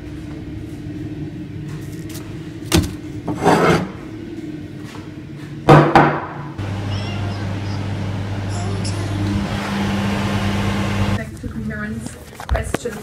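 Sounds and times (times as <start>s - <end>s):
scrape on wooden desk: 3.3s - 3.9s.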